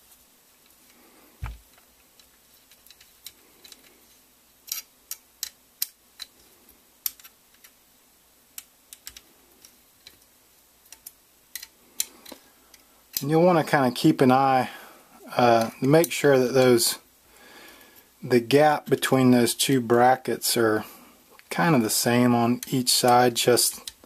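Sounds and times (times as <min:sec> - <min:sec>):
rifle parts knocking on mat: 0:01.4 - 0:01.8.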